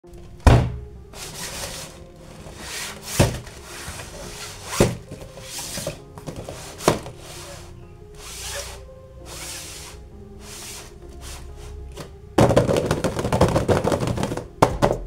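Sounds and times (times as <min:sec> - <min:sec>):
cardboard parts rubbing and sliding: 0:01.1 - 0:11.8.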